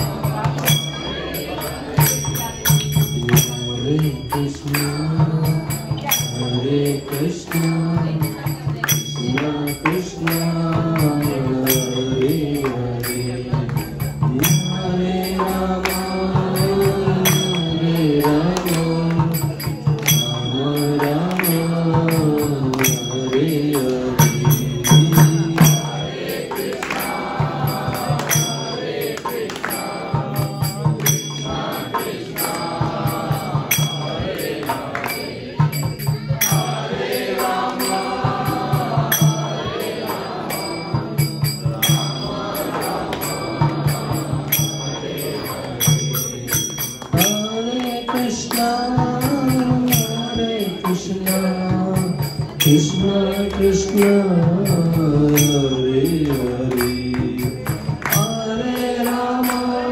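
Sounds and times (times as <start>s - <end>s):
devotional chanting: 0.0s - 59.9s
drum beat: 0.0s - 59.9s
small hand cymbals: 0.0s - 59.9s.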